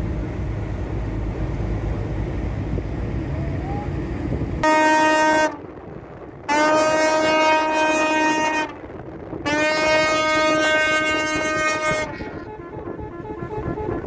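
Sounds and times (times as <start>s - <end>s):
tugboat horn blasts: 4.6s - 5.7s, 6.5s - 14.0s.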